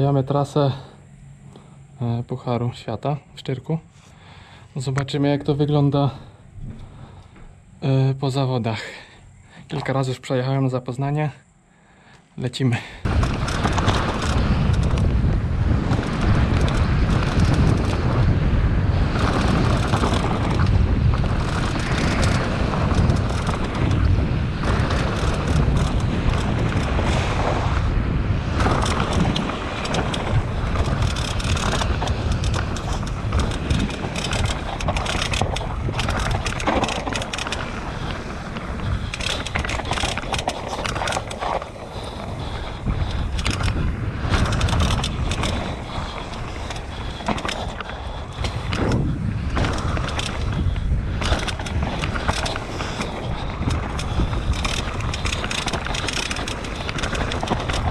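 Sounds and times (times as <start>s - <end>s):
wind buffeting microphone: 4.3s - 7.8s, 13.0s - 57.9s
tyres on dirt and rock: 12.5s - 57.9s
bike rattling: 13.0s - 57.9s
sharp clicks and knocks: 28.6s - 41.7s, 42.9s - 57.9s.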